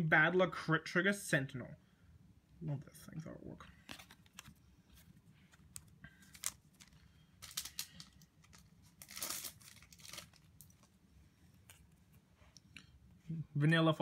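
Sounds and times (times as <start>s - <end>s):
wrapper tearing and crinkling: 5.8s - 10.9s.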